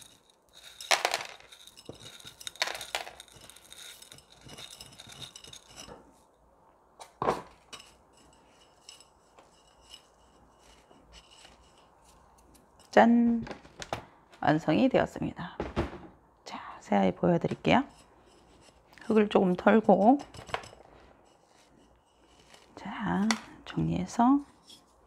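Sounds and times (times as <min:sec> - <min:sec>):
clay pots clinking and knocking: 0:00.0 - 0:06.2, 0:07.0 - 0:12.0
grit pouring and rattling: 0:00.0 - 0:06.2, 0:07.5 - 0:12.9, 0:21.4 - 0:23.3.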